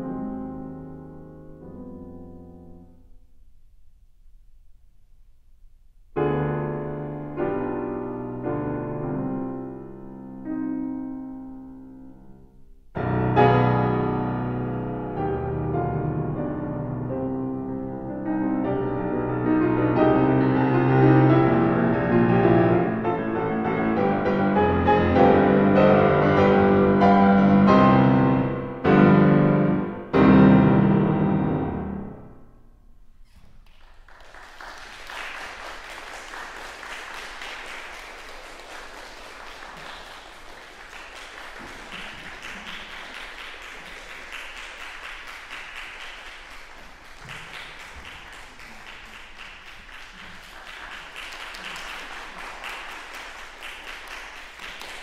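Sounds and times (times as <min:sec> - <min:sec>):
grand piano playing: 0:00.0 - 0:03.2, 0:06.2 - 0:32.8
audience applauding: 0:33.6 - 0:55.0.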